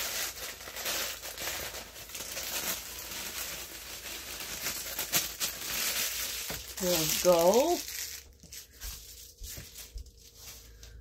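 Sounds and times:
crackers crunching: 0.0 - 11.0
plastic wrapper crinkling: 0.0 - 11.0.

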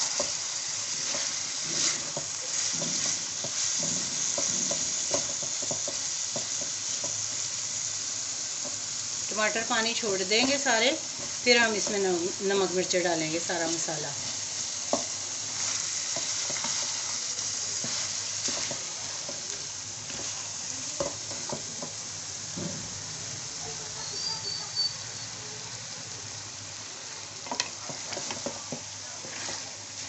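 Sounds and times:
wooden spatula scraping wok: 0.0 - 7.5, 9.4 - 22.9, 27.5 - 30.0
food sizzling in a wok: 0.0 - 30.0
spatula knocking against pan: 2.1 - 7.2.

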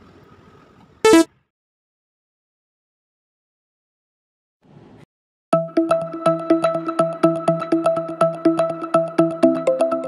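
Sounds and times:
short electronic tone: 1.1 - 1.3.

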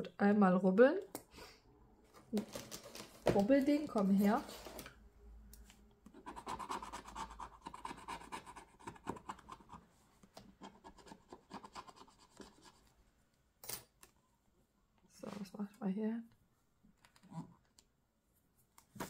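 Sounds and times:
scratching card with scratch tool: 6.2 - 9.8.

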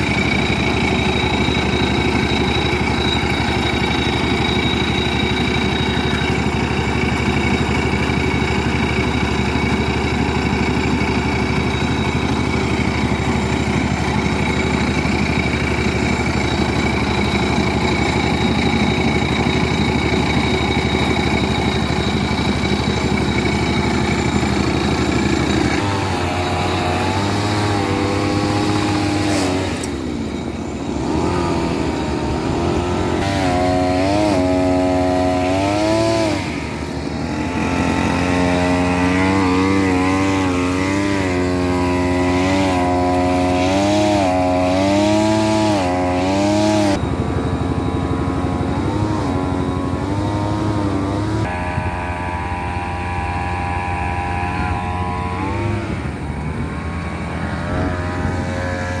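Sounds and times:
small engine revving: 0.0 - 59.0.

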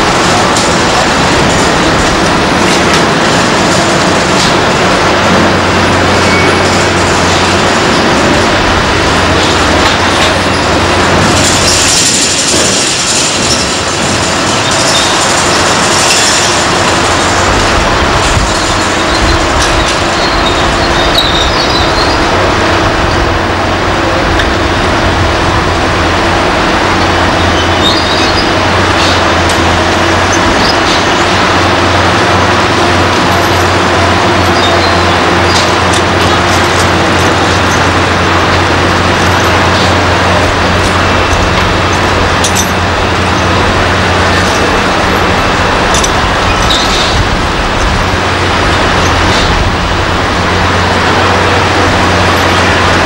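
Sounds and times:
heavy construction machinery din: 0.0 - 53.0
high metallic squeal: 5.9 - 8.3, 9.2 - 17.5, 18.2 - 23.2, 26.8 - 32.1, 33.0 - 47.2.

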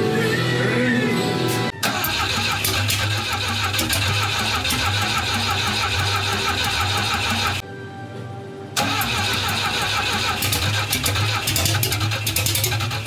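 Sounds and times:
car engine starting and running: 1.8 - 7.6, 8.8 - 13.0.

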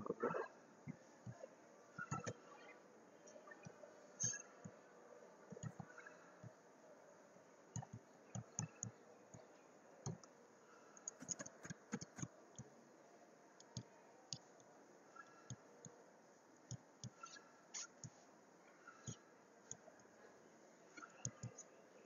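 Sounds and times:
computer mouse clicks: 2.0 - 2.7, 3.5 - 4.8, 5.5 - 6.5, 7.7 - 10.3, 11.0 - 12.7, 16.7 - 18.2, 18.9 - 19.8, 21.0 - 21.7
keyboard typing: 5.5 - 6.1, 11.0 - 12.3.

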